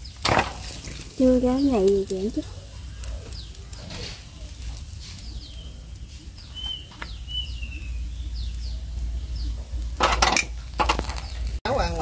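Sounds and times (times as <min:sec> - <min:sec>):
birds chirping: 0:00.0 - 0:12.0
steady low rumble: 0:00.8 - 0:12.0
whistled bird notes: 0:01.5 - 0:09.8.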